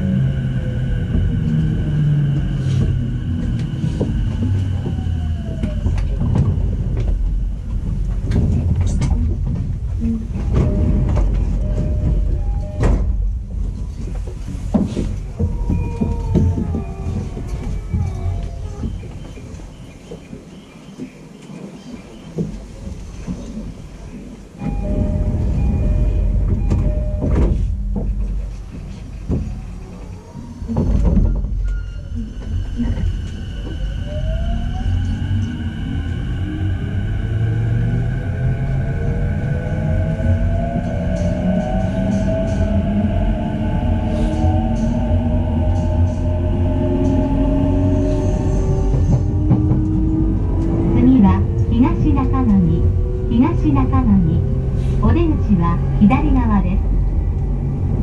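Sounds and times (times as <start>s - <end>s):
low train rumble: 0.0s - 58.0s
train door chime: 10.5s - 13.3s, 24.6s - 28.0s
platform noise: 24.6s - 27.6s.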